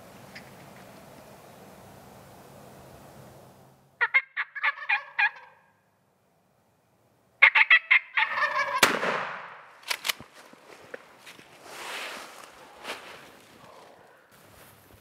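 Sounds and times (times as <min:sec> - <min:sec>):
turkey gobbling: 0:04.0 - 0:05.6, 0:07.4 - 0:08.9.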